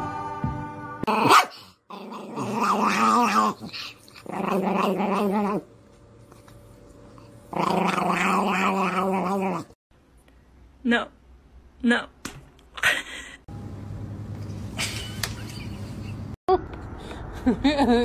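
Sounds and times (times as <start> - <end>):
small dog growling: 1.1 - 5.7, 7.5 - 9.8.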